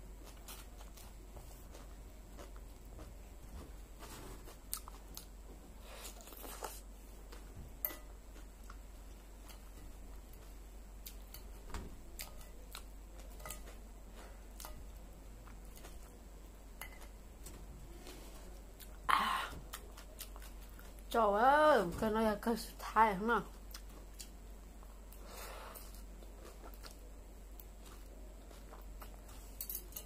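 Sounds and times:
chewing crunchy salad: 0.1s - 3.3s, 4.0s - 16.2s, 19.7s - 21.1s, 23.5s - 30.0s.

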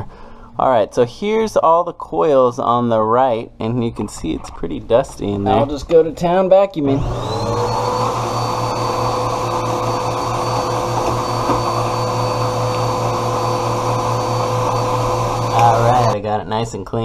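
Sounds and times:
vacuum cleaner whining: 6.9s - 16.2s.

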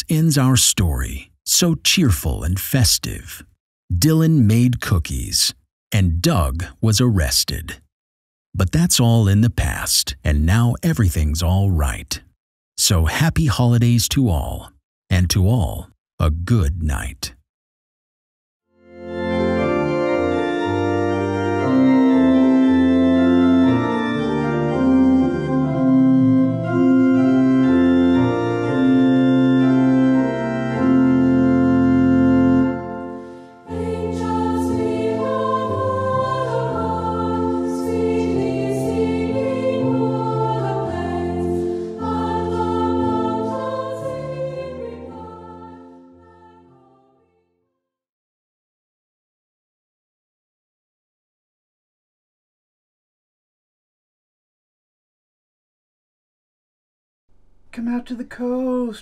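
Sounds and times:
slow background music: 19.0s - 47.3s.

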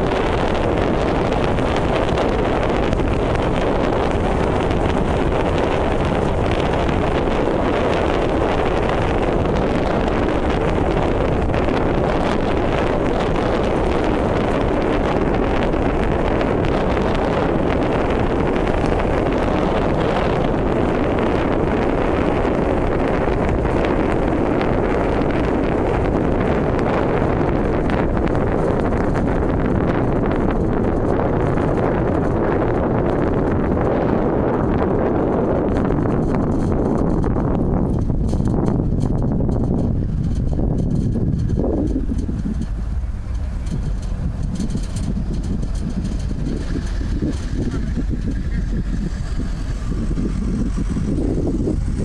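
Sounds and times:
car driving rumble: 0.0s - 52.0s
wind buffeting microphone: 0.0s - 52.0s.

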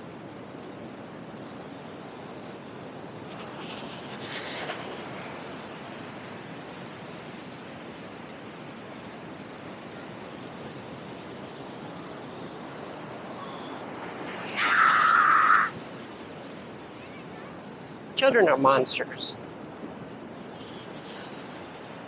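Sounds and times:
ocean surf on sandy beach: 0.0s - 22.0s.

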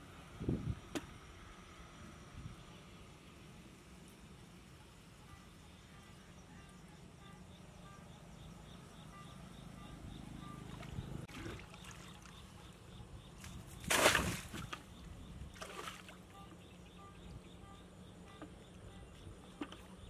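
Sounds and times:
muddy water splashing: 10.6s - 12.5s, 13.4s - 16.6s.

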